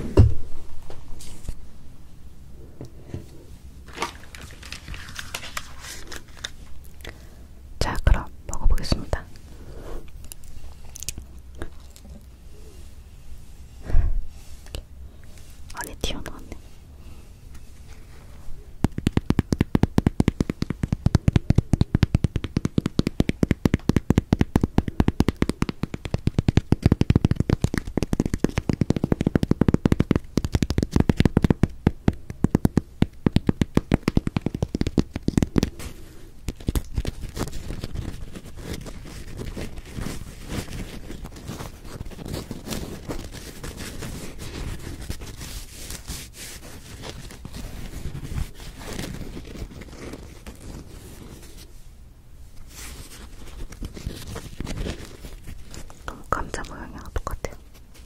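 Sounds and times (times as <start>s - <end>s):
fingernails tapping bread crust: 18.8s - 35.9s.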